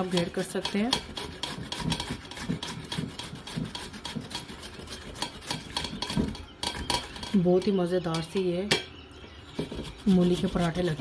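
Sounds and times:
radish rasping on grater: 0:00.1 - 0:06.3, 0:09.6 - 0:11.0.

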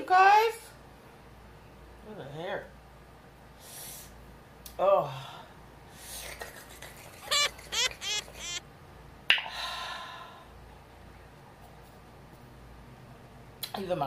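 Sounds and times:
woman crying out: 0:07.3 - 0:08.6.

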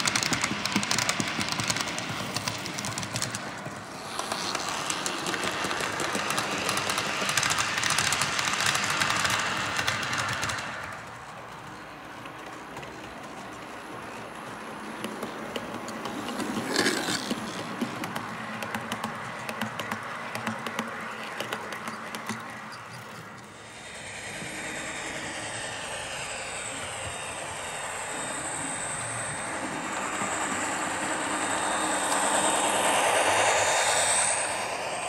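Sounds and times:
model train wheels clicking: 0:00.0 - 0:35.0
faint high whine: 0:21.0 - 0:35.0.

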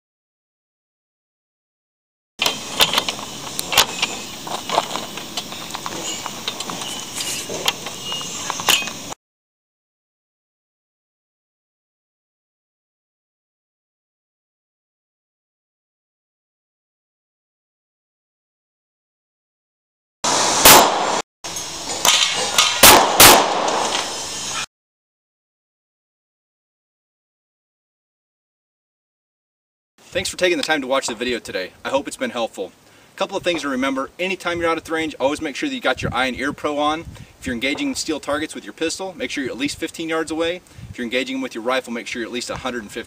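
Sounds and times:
pistol shots hitting steel target: 0:20.6 - 0:21.2, 0:21.9 - 0:24.1.

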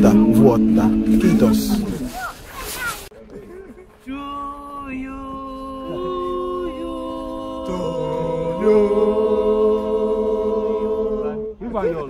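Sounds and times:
men singing a cappella in harmony: 0:00.0 - 0:02.1, 0:04.1 - 0:11.6.

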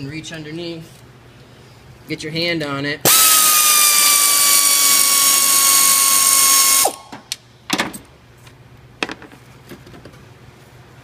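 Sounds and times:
power ratchet whining: 0:03.1 - 0:07.1.

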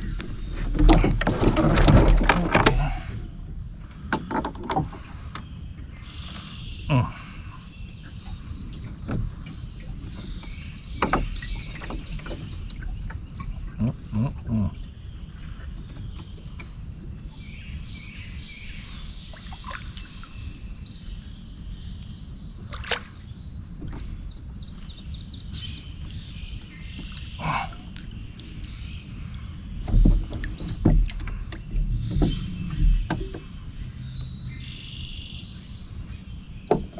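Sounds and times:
steady low rumble: 0:23.3 - 0:36.7.

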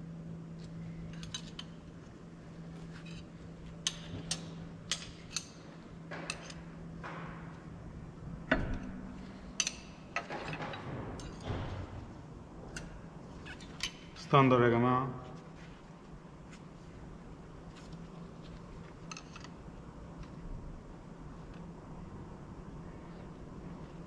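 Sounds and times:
metallic clicks of washers: 0:03.8 - 0:05.6, 0:09.6 - 0:10.6.

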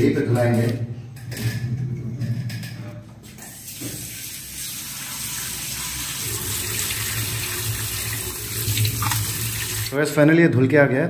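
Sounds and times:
tap water splashing on fruit: 0:08.6 - 0:09.7.

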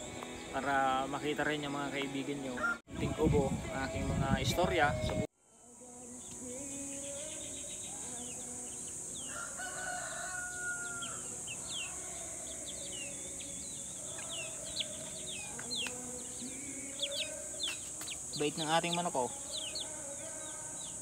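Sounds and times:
rooster crowing: 0:02.6 - 0:02.8, 0:09.2 - 0:12.3
high insect drone: 0:05.4 - 0:21.0
small birds chirping: 0:06.2 - 0:21.0
chickens clucking: 0:09.3 - 0:20.0.

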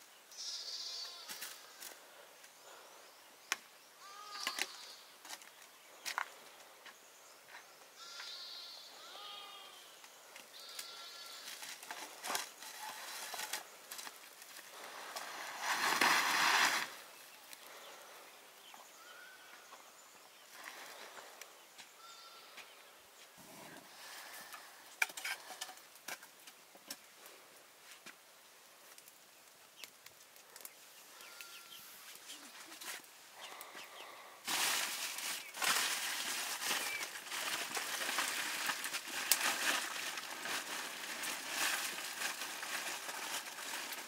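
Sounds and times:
sheep bleating: 0:00.4 - 0:01.4, 0:04.0 - 0:04.6, 0:08.0 - 0:09.9, 0:10.6 - 0:11.5.

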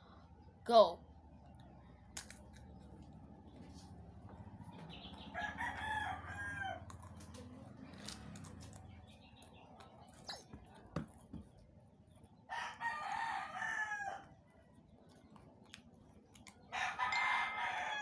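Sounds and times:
crackers being eaten: 0:02.1 - 0:02.8, 0:06.8 - 0:10.9, 0:15.0 - 0:16.7
rooster crowing: 0:05.3 - 0:07.0, 0:12.5 - 0:14.3, 0:16.7 - 0:18.0.

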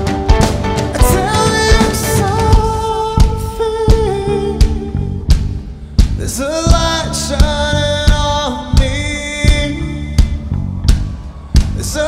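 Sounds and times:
drum kit beat: 0:00.0 - 0:12.0
man singing long notes: 0:00.9 - 0:05.2.

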